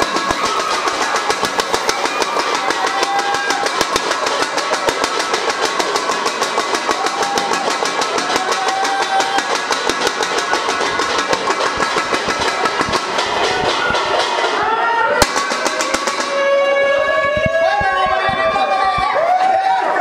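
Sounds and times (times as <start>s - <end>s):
banging on pots and cans: 0.0s - 14.6s
voices shouting: 0.0s - 20.0s.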